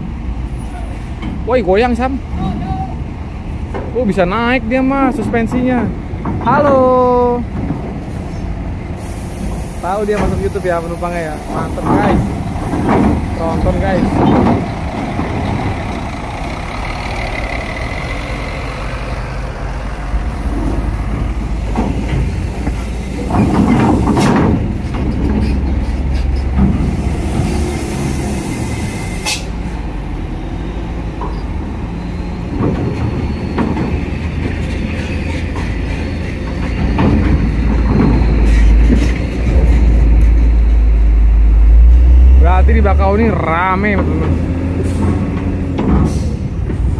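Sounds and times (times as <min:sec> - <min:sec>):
diesel engine rumble: 0:00.0 - 0:46.9
air brake hiss: 0:09.0 - 0:10.1, 0:27.8 - 0:29.6
wheels knocking on ramp plates: 0:11.7 - 0:15.8, 0:36.6 - 0:40.1.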